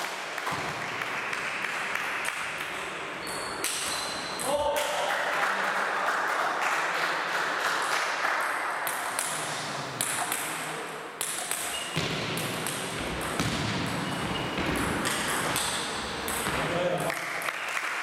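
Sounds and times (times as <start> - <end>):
table tennis balls bouncing: 0.4 - 4.9, 8.8 - 17.6.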